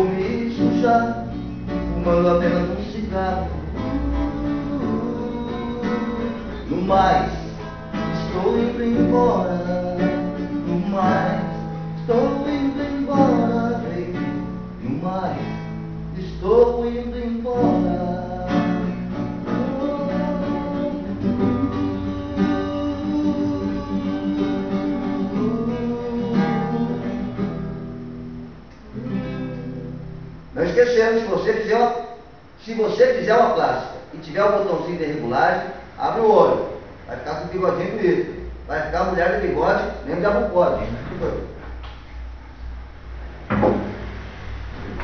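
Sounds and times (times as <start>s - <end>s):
man singing: 0.0s - 15.6s, 16.2s - 27.2s
acoustic guitar strumming: 0.0s - 45.0s.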